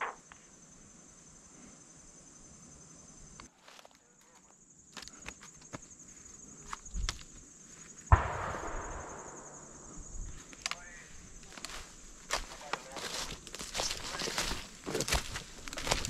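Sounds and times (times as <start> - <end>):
gunshot echoing: 8.1 - 10.4
footsteps through dry leaves: 11.6 - 16.0.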